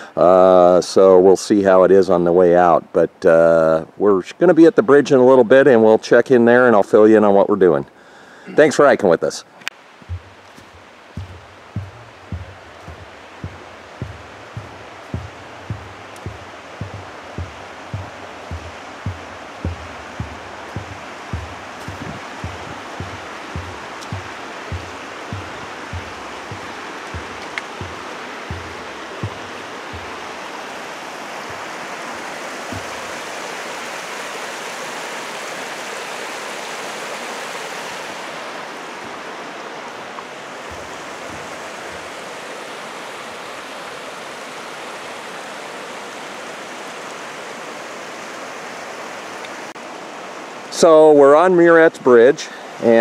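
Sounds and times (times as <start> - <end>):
footsteps on bridge deck: 9.8 - 33.4, 40.5 - 42.9
creek rushing over rocks: 9.8 - 53.0.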